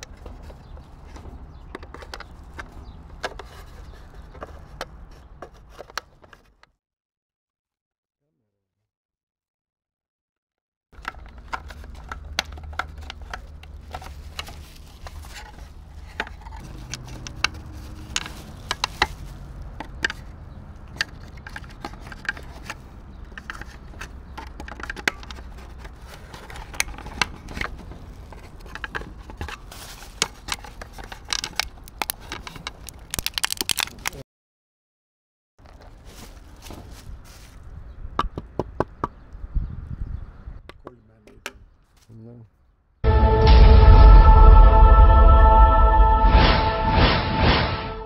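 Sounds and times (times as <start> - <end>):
bubble wrap crackling: 11.7 - 20.4, 25.4 - 34.2.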